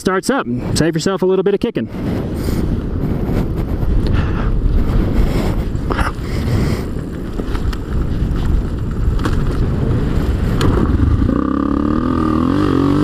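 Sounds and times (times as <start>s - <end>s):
wind: 0.0s - 13.0s
tyres rumbling on gravel: 4.6s - 13.0s
motorcycle engine running: 5.9s - 13.0s.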